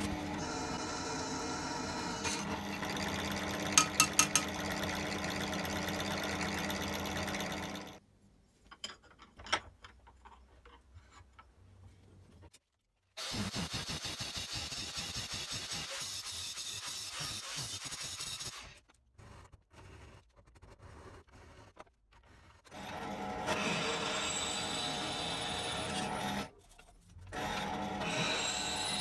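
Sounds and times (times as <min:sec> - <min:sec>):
drill press motor running: 0:00.0 - 0:08.0.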